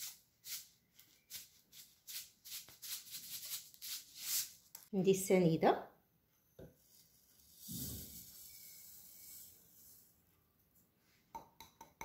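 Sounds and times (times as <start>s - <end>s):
sugar pouring with soft hiss: 6.8s - 10.2s.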